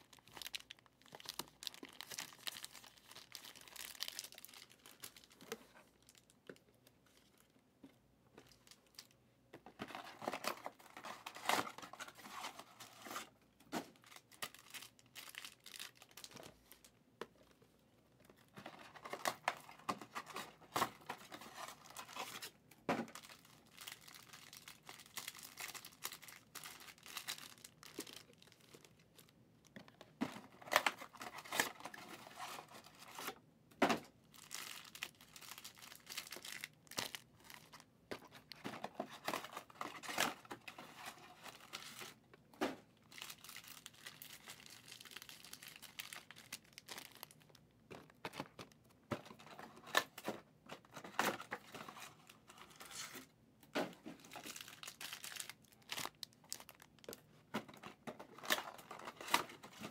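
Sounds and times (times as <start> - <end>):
foil and plastic wrap crinkling: 0.0 - 6.4, 9.8 - 16.9, 18.6 - 29.3, 34.3 - 42.2, 43.0 - 50.2, 54.1 - 59.9.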